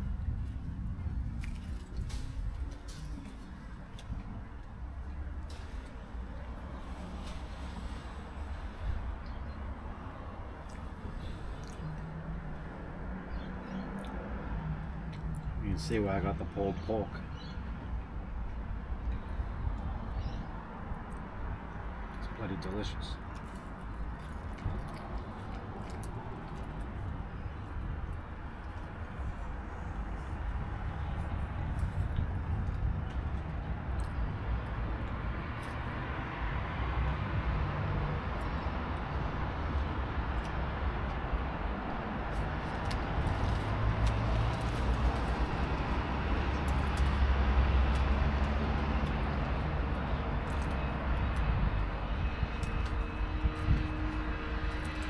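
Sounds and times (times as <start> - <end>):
distant traffic: 0.0 - 55.0
passing motor vehicles: 0.0 - 55.0
wind: 0.0 - 55.0
person chewing food: 23.3 - 27.0.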